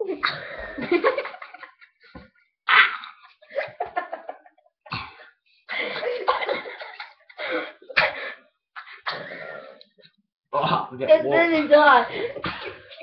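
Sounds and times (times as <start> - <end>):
people coughing and spluttering: 4.9 - 9.8, 12.1 - 13.0.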